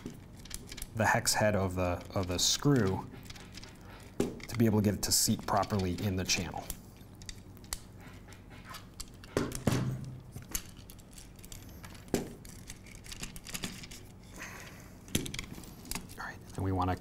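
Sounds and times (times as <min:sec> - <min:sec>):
metal parts clinking and knocking: 0:00.0 - 0:07.9, 0:08.8 - 0:14.2.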